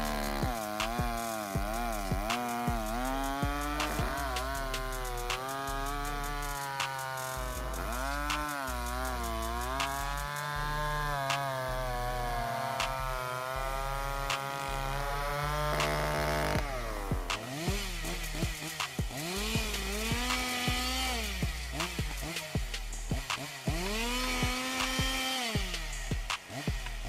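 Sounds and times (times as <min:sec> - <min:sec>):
chainsaw cutting wood: 0:00.0 - 0:27.0.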